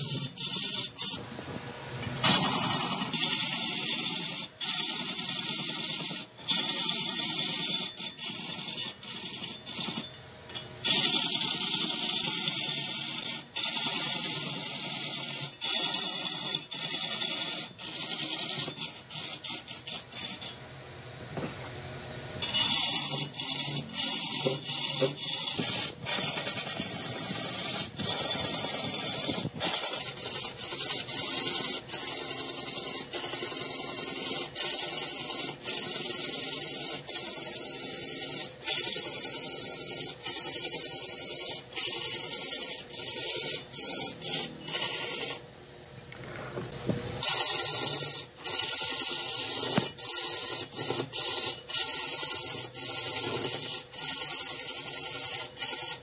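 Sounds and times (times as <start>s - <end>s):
wood lathe hiss and scrape: 22.4s - 45.4s, 46.3s - 56.0s.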